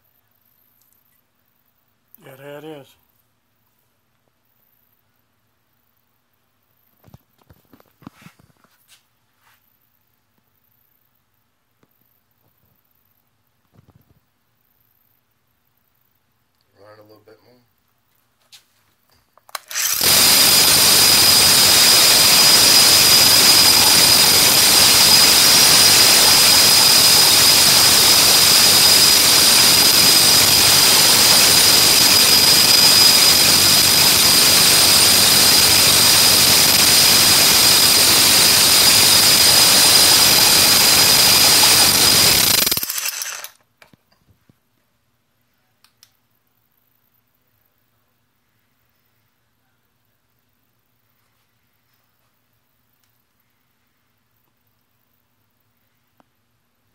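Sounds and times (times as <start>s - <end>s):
rotary hammer motor whining: 19.6s - 43.5s.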